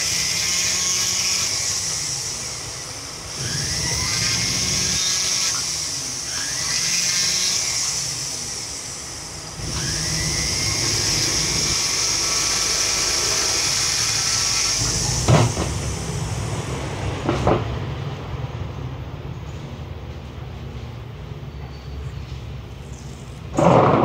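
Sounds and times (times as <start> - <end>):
rotary tool whining: 0.0 - 17.6, 22.9 - 24.0.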